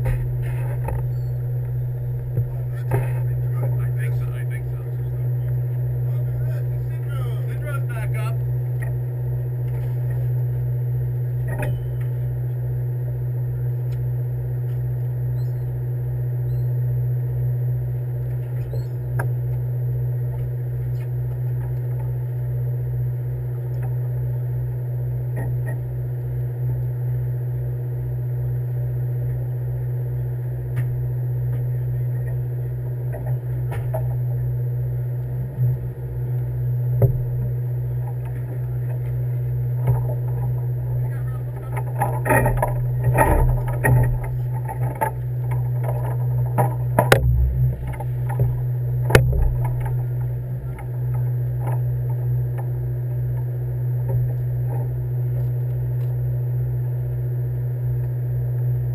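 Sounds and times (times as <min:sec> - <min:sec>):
boat engine throbbing: 0:00.0 - 0:58.8.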